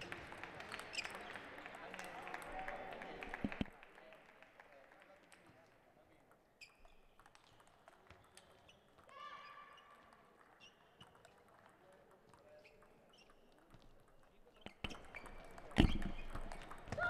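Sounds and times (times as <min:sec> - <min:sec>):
table tennis ball clicks: 0:10.4 - 0:17.0.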